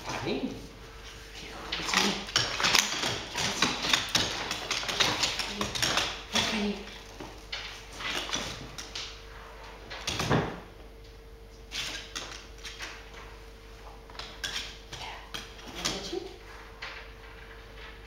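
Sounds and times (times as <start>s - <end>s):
dog nails tapping on wooden floor: 1.7s - 9.2s.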